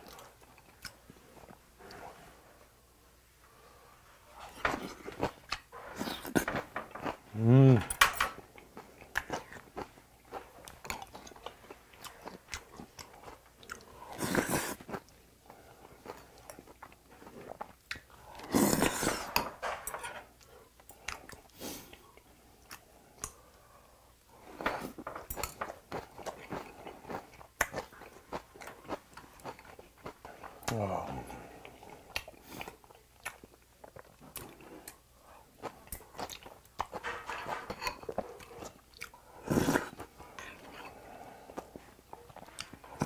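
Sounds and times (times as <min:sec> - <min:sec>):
wet chewing with mouth clicks: 0:07.9 - 0:19.2, 0:31.6 - 0:37.1, 0:37.7 - 0:43.0
person slurping: 0:14.0 - 0:14.9, 0:18.4 - 0:19.4, 0:39.4 - 0:41.8.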